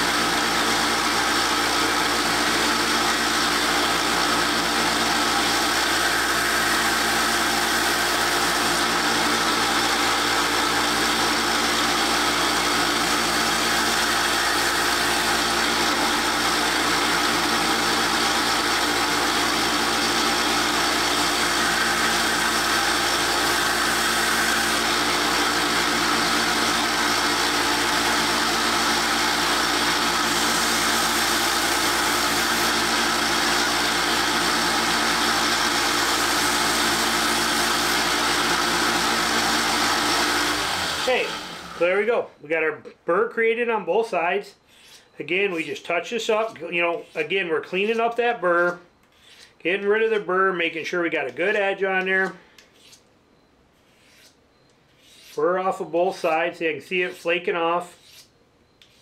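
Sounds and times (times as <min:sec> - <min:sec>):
steel grinding on sanding belt: 0:00.0 - 0:42.0, 0:52.1 - 0:53.0, 0:53.8 - 0:59.0
belt sander running: 0:00.0 - 0:42.1.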